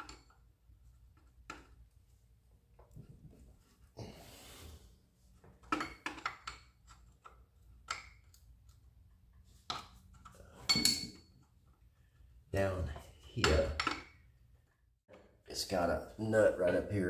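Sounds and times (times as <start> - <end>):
hand tool clinking on metal: 10.6 - 11.3.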